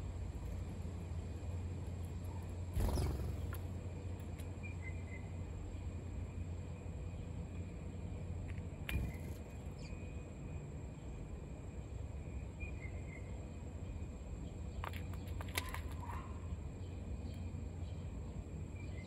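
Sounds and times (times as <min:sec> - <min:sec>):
faint bird chirps: 0:02.3 - 0:03.7, 0:04.5 - 0:06.0, 0:08.8 - 0:11.2, 0:11.8 - 0:19.0.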